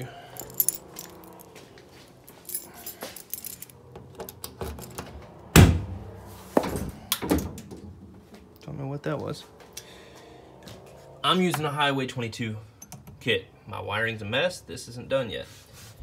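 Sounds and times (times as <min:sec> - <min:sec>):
keys jangling: 0:00.2 - 0:01.6, 0:02.2 - 0:05.0
handling noise: 0:00.4 - 0:05.3.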